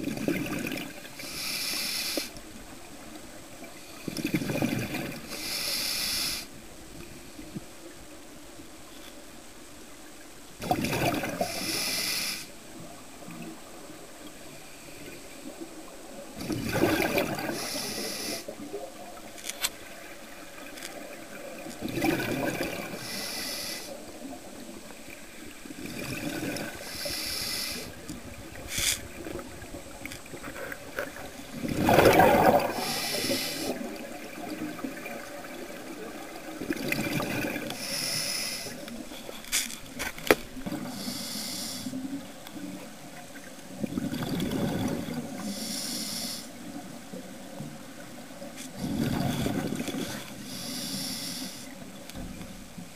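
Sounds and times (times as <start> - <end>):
steady background hiss: 0.0 - 52.9
diver exhaling bubbles: 16.4 - 18.2, 21.8 - 23.0, 30.4 - 35.0, 43.8 - 45.3, 48.8 - 50.2.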